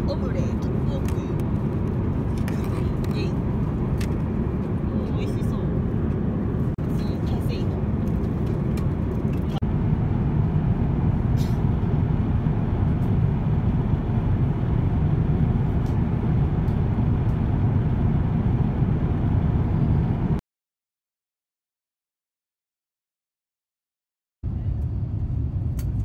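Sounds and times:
airplane cabin engine and airflow rumble: 0:00.0 - 0:20.4, 0:24.4 - 0:26.0.

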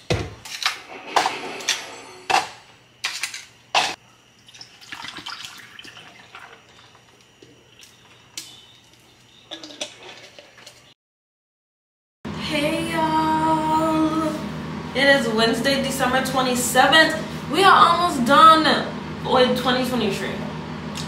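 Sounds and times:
juice pouring over ice: 0:04.4 - 0:07.9.

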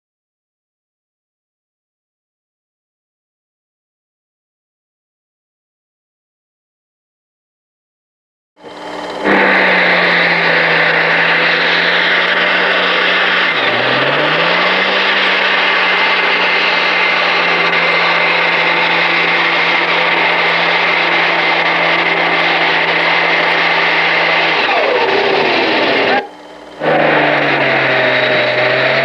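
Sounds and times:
high whine: 0:08.6 - 0:29.0
tractor diesel engine under load: 0:08.6 - 0:29.0.

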